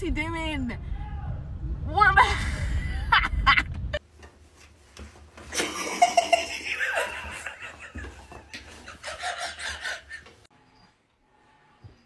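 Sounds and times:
person laughing: 0:05.5 - 0:10.4.

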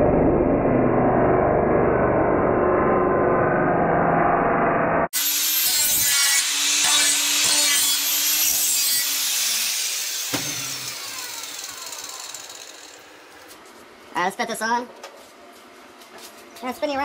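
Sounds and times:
angle grinder grinding metal: 0:05.2 - 0:13.5.

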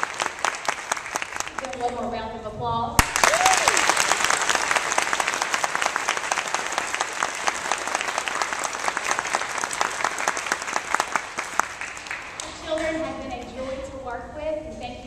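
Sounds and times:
audience applauding: 0:00.0 - 0:01.9, 0:03.0 - 0:12.9.

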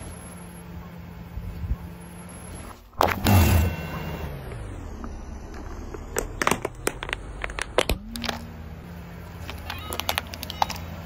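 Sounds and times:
low rumble of car: 0:00.0 - 0:11.0
plastic toy cracking under tyre: 0:05.6 - 0:08.5, 0:09.4 - 0:10.9.

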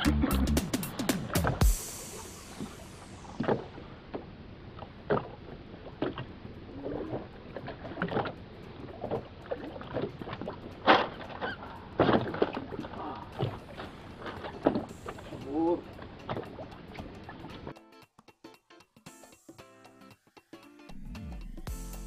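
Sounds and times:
hiss of wind and water: 0:00.7 - 0:17.7
waves lapping against boat hull: 0:00.9 - 0:17.7.

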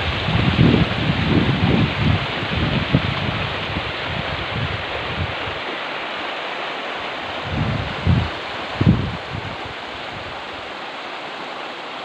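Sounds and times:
wind buffeting microphone: 0:00.0 - 0:05.6, 0:07.4 - 0:10.5
river rushing over stones: 0:00.0 - 0:12.0.

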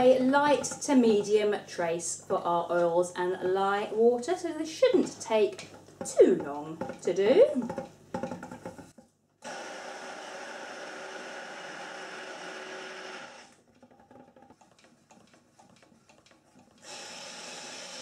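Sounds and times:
stick blender motor running: 0:09.4 - 0:18.0
faint clicks and knocks: 0:13.5 - 0:16.8.

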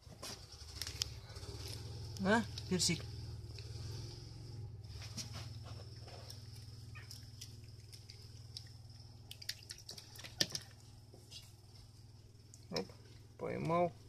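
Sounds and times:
steady low hum: 0:00.0 - 0:14.0
cat licking and chewing: 0:05.3 - 0:13.4.

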